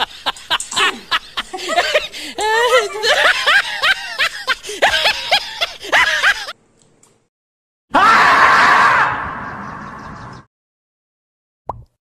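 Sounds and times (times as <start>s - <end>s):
women laughing: 0.0s - 6.6s.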